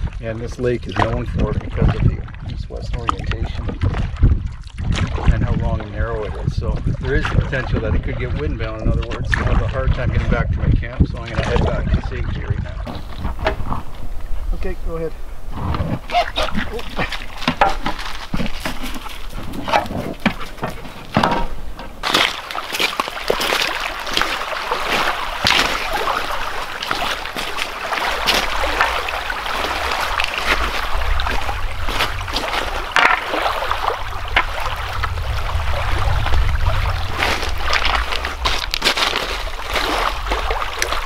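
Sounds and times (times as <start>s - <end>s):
wind rumble on microphone: 0.0s - 24.3s, 24.9s - 41.0s
water splashing on pebble shore: 12.8s - 41.0s.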